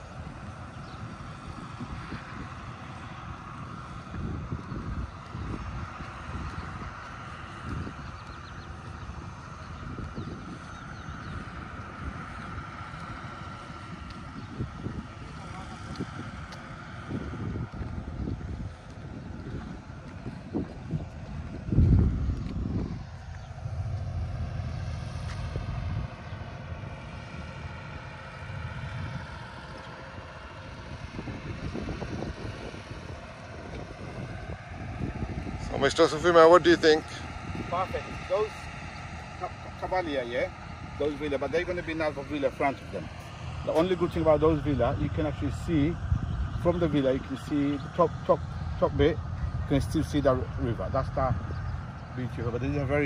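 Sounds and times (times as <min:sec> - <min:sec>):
distant traffic and machinery hum: 0:00.0 - 0:53.0
wind buffeting microphone: 0:00.0 - 0:53.0.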